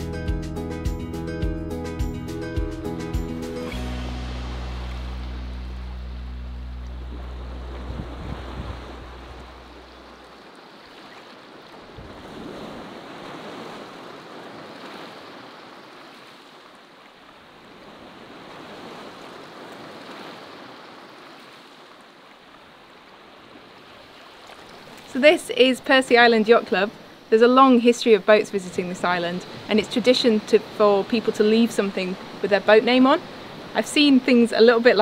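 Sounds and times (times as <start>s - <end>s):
music with low held notes: 0.0s - 10.0s
wind: 0.0s - 35.0s
small waves washing onto beach: 4.1s - 35.0s.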